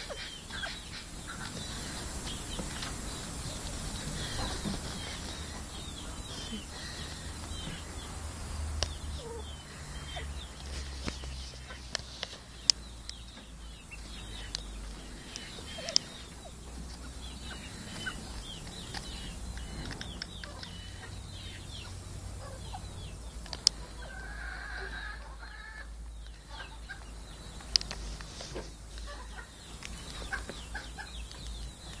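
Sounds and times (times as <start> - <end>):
fowl clucking and chirping: 0.0 - 32.0
sharp clicks: 10.6 - 13.5, 18.6 - 20.8, 23.4 - 23.8, 27.6 - 28.4.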